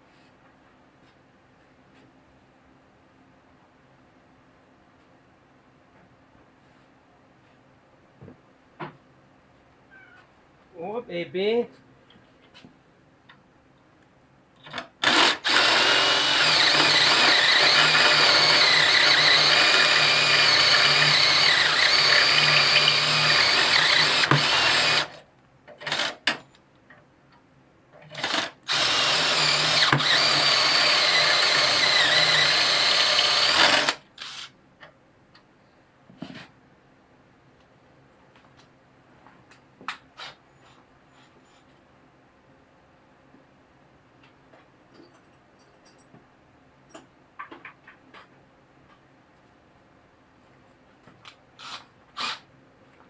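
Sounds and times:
cordless drill boring through metal: 14.7s - 25.2s, 25.8s - 26.2s, 28.1s - 34.5s, 51.6s - 52.5s.

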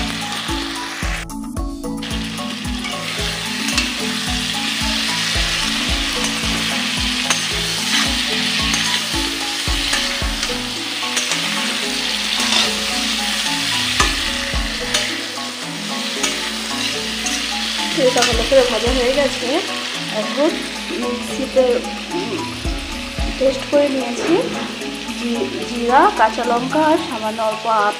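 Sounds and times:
vegetables sizzling in oil: 0.0s - 1.2s, 1.9s - 27.9s
spatula clicking and scraping pan: 2.8s - 19.1s.

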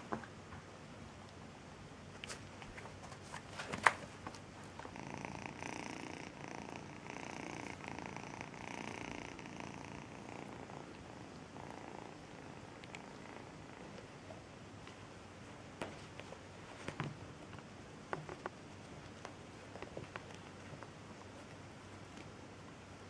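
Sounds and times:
kitten purring: 4.6s - 14.6s, 15.3s - 23.0s.

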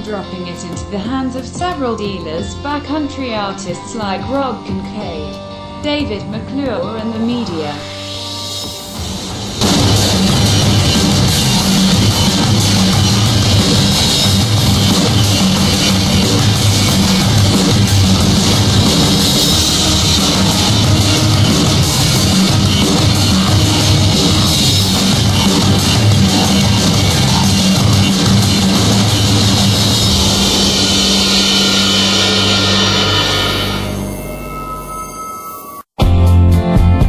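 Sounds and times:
rock music with heavy guitars: 7.8s - 35.1s.

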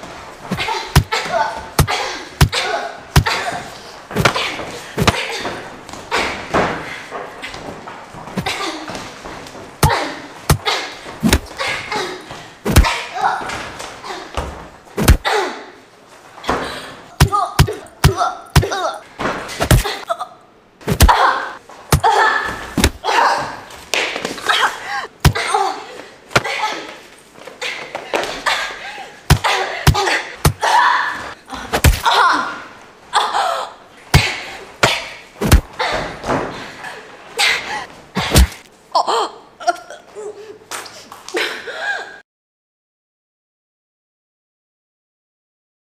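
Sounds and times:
punches thudding on a body: 0.5s - 2.6s, 4.2s - 5.3s, 9.8s - 11.6s, 12.6s - 13.0s, 15.0s - 15.2s, 17.2s - 19.9s, 20.9s - 21.2s, 22.8s - 23.0s, 29.3s - 30.6s, 31.7s - 32.1s, 34.1s - 36.4s, 38.2s - 38.6s
woman grunting and crying out: 0.5s - 5.6s, 19.6s - 23.6s, 27.7s - 36.2s, 37.4s - 40.6s.

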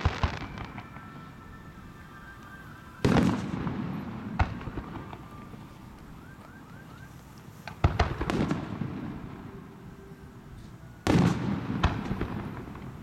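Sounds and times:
firework sharp crack: 0.0s - 6.4s, 7.5s - 9.6s, 11.0s - 13.0s
firework crackles: 0.0s - 13.0s
firework shells booming: 3.0s - 5.7s, 7.6s - 9.4s, 11.0s - 13.0s.

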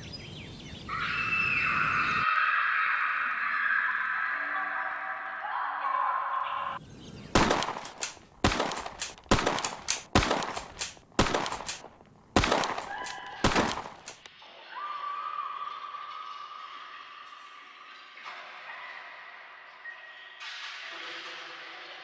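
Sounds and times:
gunshots with echo: 7.4s - 14.2s.

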